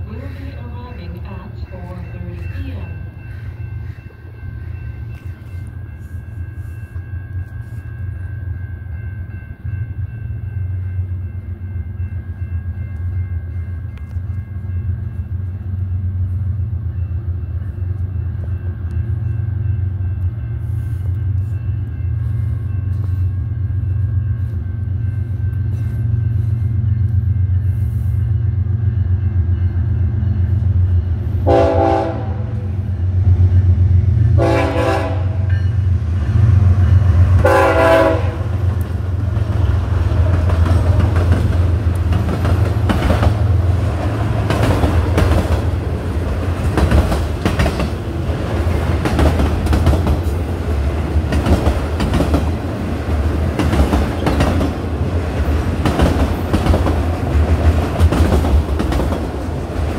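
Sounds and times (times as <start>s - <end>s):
diesel locomotive engine rumble: 0.0s - 59.9s
locomotive horn: 31.4s - 32.8s, 34.4s - 35.5s, 37.4s - 38.7s.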